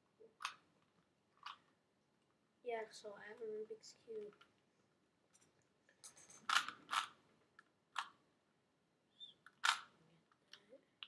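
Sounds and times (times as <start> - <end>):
puzzle cube clacking: 0.3 - 1.7, 6.1 - 8.2, 9.2 - 11.0.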